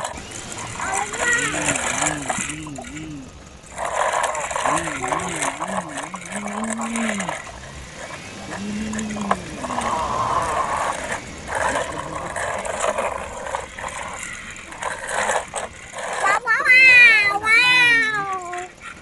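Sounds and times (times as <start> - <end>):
plastic wheels rolling on gritty concrete: 0.0 - 19.0
low wavering voice-like tones: 0.7 - 15.0.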